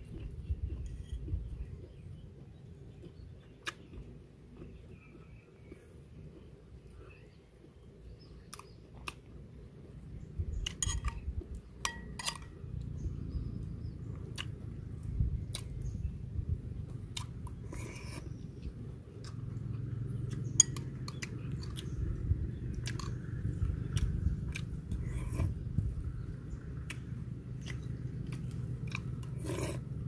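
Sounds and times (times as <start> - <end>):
person chewing food: 0.0 - 7.0, 8.4 - 9.9, 14.1 - 16.2, 16.8 - 30.0
metal spoon scraping ceramic bowl: 10.8 - 11.2, 11.8 - 12.5, 17.7 - 18.2, 25.0 - 25.5, 29.4 - 29.8.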